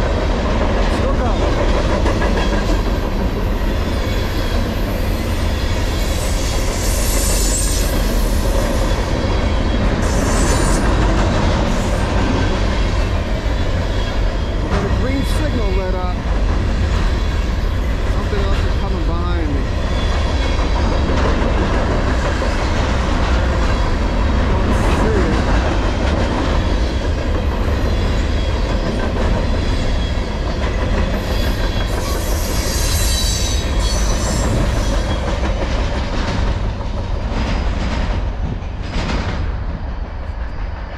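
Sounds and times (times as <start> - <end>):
freight train wheels rolling on rails: 0.0 - 40.9
high-pitched wheel squeal: 31.2 - 35.2.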